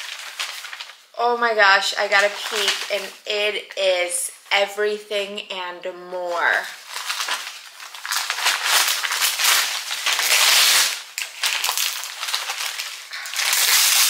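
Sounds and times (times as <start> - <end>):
packing paper crinkling: 0.0 - 3.4, 6.3 - 14.0.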